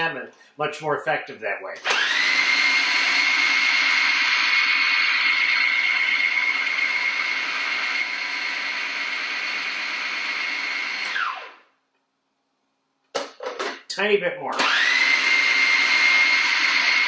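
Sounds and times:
food processor motor whining: 1.8s - 11.7s, 14.6s - 17.0s.

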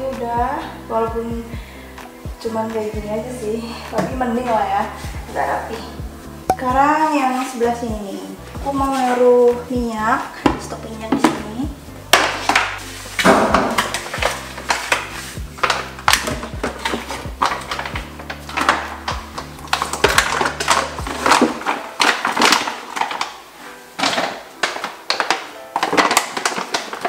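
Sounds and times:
background music with bass: 0.0s - 21.6s
plastic containers clattering: 10.3s - 27.0s.

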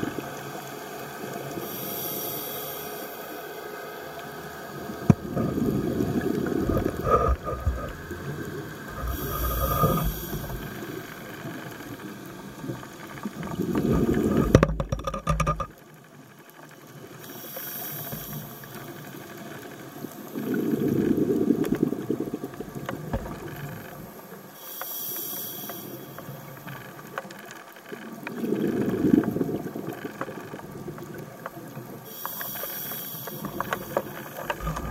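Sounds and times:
regulator inhale hiss: 0.3s - 4.8s, 8.8s - 11.4s, 17.2s - 19.4s, 24.5s - 26.7s, 32.0s - 34.9s
exhaled bubbles rumbling: 5.0s - 15.7s, 20.3s - 24.1s, 28.2s - 31.8s, 34.3s - 34.9s.

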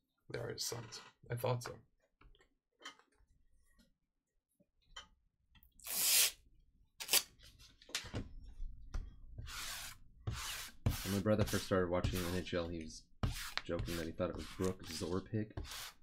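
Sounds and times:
lint roller sheet ripping: 7.0s - 7.3s.

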